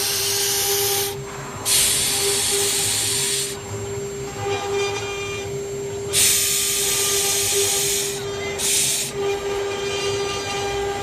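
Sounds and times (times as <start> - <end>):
bit cutting fibreboard hiss: 0.0 - 3.6, 6.1 - 9.2
router spindle whine: 0.0 - 11.0.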